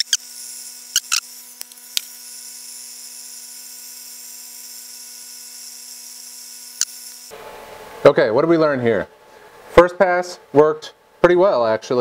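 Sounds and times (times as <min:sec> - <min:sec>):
laser engraver high-pitched whine: 0:00.0 - 0:07.3.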